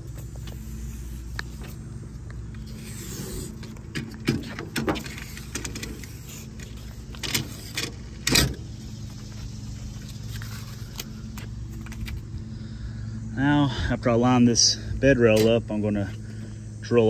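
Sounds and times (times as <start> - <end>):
plastic film peeling and crackling: 0.0 - 7.8.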